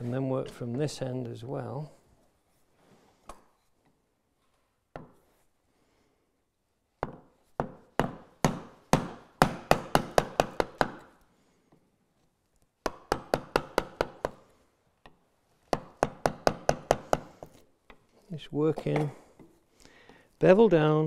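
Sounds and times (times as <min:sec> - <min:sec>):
mallet striking chisel into wood: 0:05.0 - 0:05.2, 0:07.0 - 0:11.2, 0:12.8 - 0:14.4, 0:15.7 - 0:17.6.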